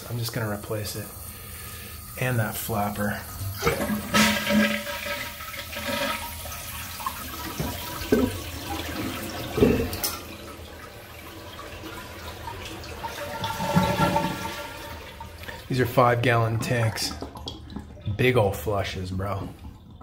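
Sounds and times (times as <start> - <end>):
toilet flushing: 0.0 - 20.0.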